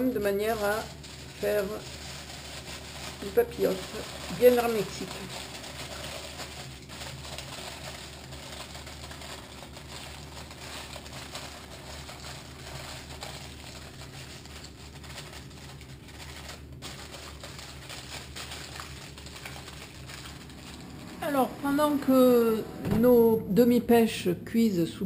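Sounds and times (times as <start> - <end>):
aluminium foil crinkling: 0.0 - 22.2
low hum: 19.5 - 24.6.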